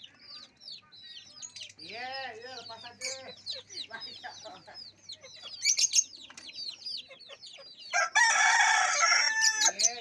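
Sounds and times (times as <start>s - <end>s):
chickens chirping and clucking: 0.0s - 10.0s
rooster crowing: 7.9s - 9.8s.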